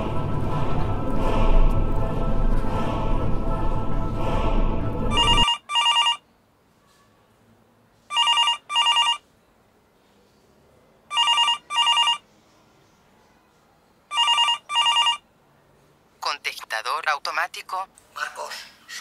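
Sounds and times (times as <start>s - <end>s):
telephone electronic double ring: 8.1s - 9.2s.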